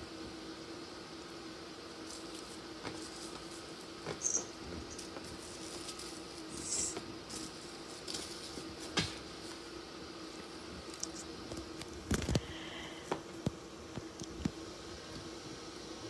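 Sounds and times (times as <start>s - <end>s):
steady low hum: 0.0s - 16.0s
soft taps and rustles: 2.1s - 6.2s, 6.9s - 9.7s.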